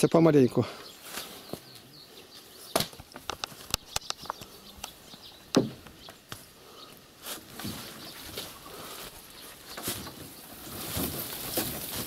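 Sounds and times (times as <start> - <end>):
wooden poles knocking and clicking: 2.7 - 6.4.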